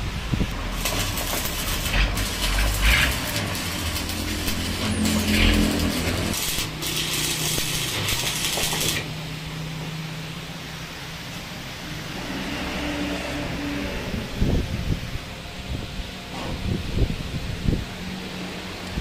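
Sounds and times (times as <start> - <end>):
electric arc crackling hiss: 0.0 - 11.1.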